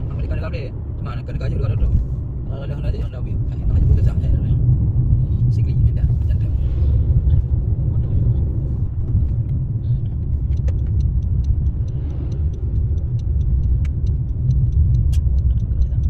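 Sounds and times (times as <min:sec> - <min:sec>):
car engine and tyre rumble: 0:00.0 - 0:16.0
light regular ticking: 0:06.9 - 0:16.0.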